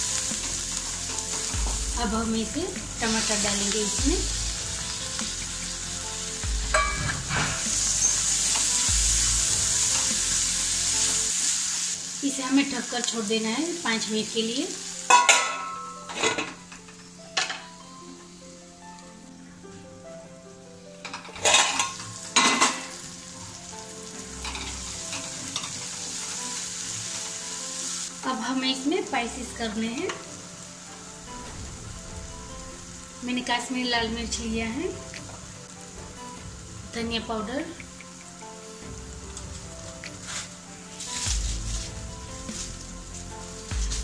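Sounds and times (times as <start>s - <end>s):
vegetables sizzling in hot oil: 0.0s - 19.6s, 21.0s - 44.0s
metal pan lid clattering: 6.7s - 7.7s, 15.1s - 17.7s, 21.0s - 23.0s.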